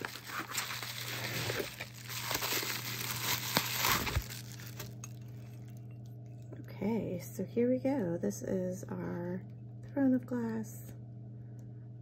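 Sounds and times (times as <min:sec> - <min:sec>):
bubble wrap crinkling: 0:00.0 - 0:06.5.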